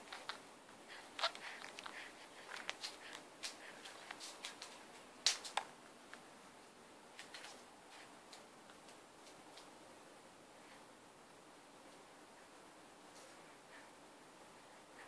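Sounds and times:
baby sucking and smacking: 0.0s - 4.7s.

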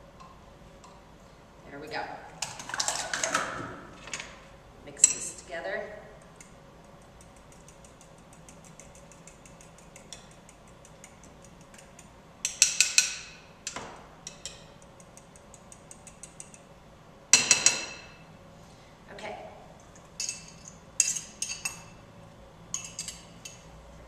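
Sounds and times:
fork beating eggs in a bowl: 6.4s - 13.1s, 14.3s - 16.7s
fork clinking on bowl: 22.7s - 23.6s.

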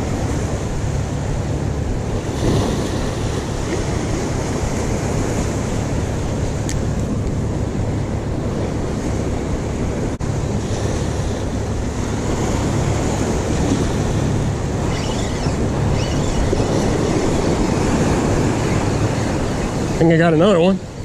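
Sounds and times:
wind rumbling on microphone: 0.0s - 21.0s
surf breaking against rocks: 2.0s - 7.2s.

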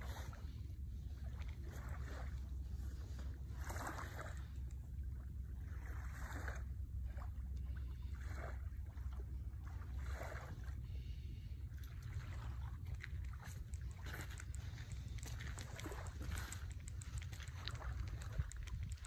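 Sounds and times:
wind buffeting microphone: 12.8s - 19.0s.

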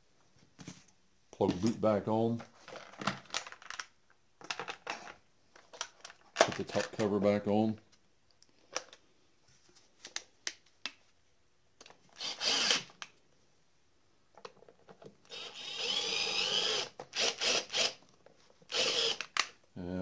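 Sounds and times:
cordless drill driving screws: 12.2s - 12.9s, 15.3s - 18.0s, 18.7s - 19.5s.

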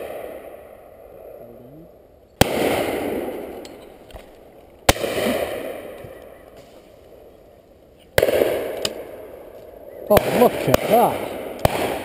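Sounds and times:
shotgun shots with echo: 2.4s - 3.5s, 4.9s - 6.0s, 8.2s - 9.1s, 10.1s - 12.0s.

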